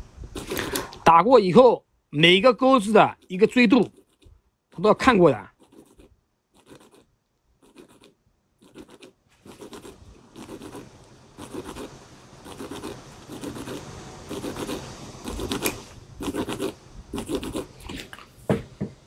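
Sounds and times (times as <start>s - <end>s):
sandpaper rubbing back and forth: 0.3s - 1.0s, 5.6s - 7.0s, 7.6s - 17.8s.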